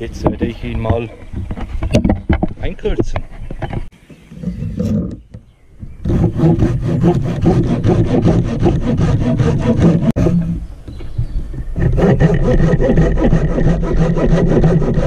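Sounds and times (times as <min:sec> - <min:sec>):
hand saw cutting log: 0:06.0 - 0:10.6, 0:11.6 - 0:15.0.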